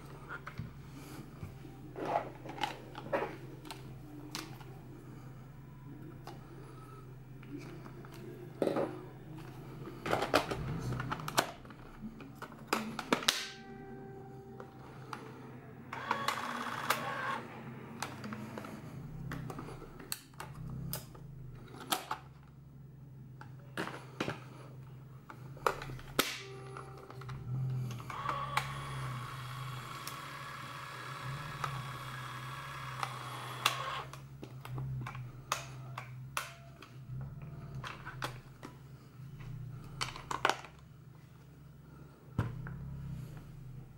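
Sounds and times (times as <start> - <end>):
camera whirring: 15.9 - 18.8, 27.0 - 34.3.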